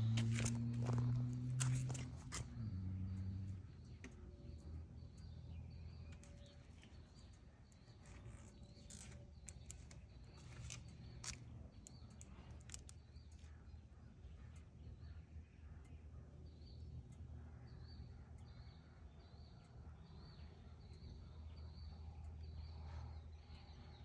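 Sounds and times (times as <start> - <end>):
light clicks: 0.0 - 23.0
low hum: 0.0 - 24.0.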